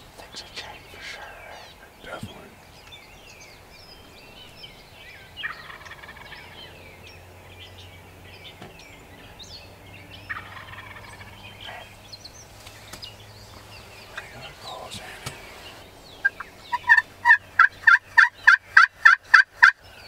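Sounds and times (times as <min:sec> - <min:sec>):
songbirds chirping: 0:00.0 - 0:20.0
wild turkey gobbling: 0:05.4 - 0:06.6, 0:10.3 - 0:11.9, 0:15.2 - 0:19.8.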